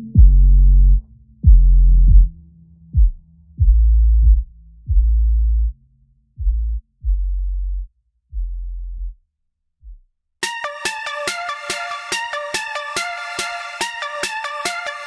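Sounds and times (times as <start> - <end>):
deep sub-bass notes: 0.0 - 9.2
electronic beat with synth: 10.4 - 15.0.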